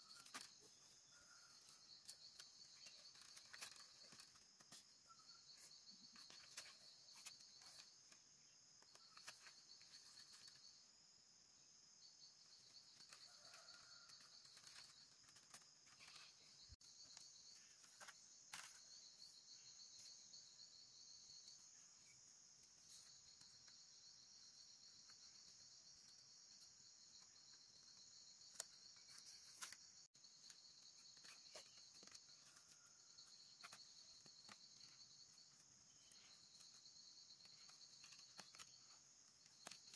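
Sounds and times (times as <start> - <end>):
insects chirring: 0.0 - 39.9
pulsing insect trill: 12.0 - 22.2.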